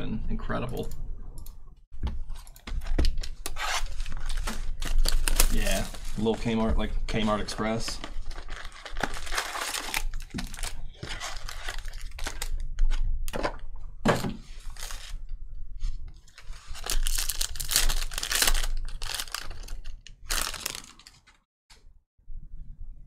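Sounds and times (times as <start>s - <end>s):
plastic wrappers crinkling: 2.3s - 12.6s, 14.6s - 15.2s, 16.2s - 21.4s
plastic pack tearing open: 3.2s - 6.3s, 8.0s - 12.6s, 14.7s - 15.2s, 16.3s - 21.4s.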